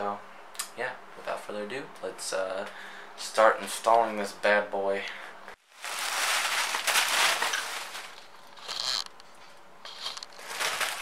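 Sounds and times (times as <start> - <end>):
plastic packaging crinkling: 5.7 - 9.3, 9.9 - 11.0.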